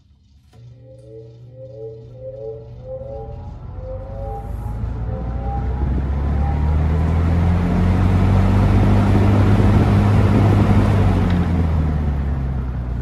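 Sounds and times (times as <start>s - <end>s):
low motor hum: 0.0s - 13.0s
fan air rushing: 0.2s - 13.0s.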